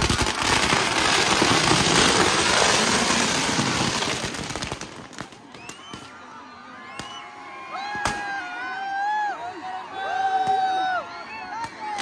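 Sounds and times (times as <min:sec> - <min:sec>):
firecrackers crackling: 0:00.0 - 0:06.2.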